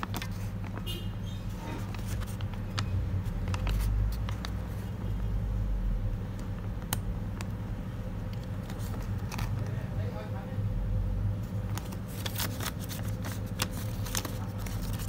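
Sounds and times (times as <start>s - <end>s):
banknote crinkling: 0.0s - 5.1s, 11.6s - 15.0s.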